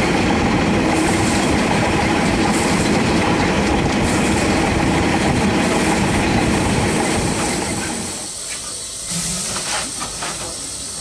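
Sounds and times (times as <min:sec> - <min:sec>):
steam locomotive running on rails: 0:00.0 - 0:11.0
steam hissing in bursts: 0:00.9 - 0:01.6, 0:02.2 - 0:03.1, 0:05.5 - 0:11.0.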